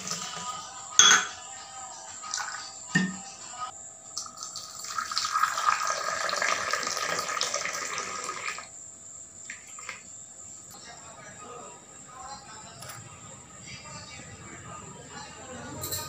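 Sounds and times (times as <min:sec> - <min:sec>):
tea pouring into a mug: 0:02.3 - 0:03.2, 0:04.1 - 0:08.7.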